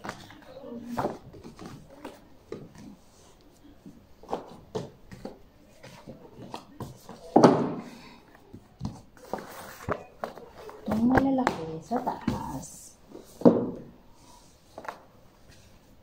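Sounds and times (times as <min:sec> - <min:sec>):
books knocking against shelves: 0:04.2 - 0:12.5, 0:13.4 - 0:13.9
book scraping on shelf: 0:09.2 - 0:10.7.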